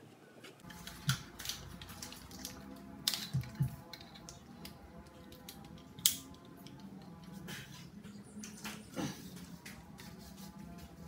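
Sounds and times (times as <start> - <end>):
hand tools clicking and tapping: 0.6 - 7.5.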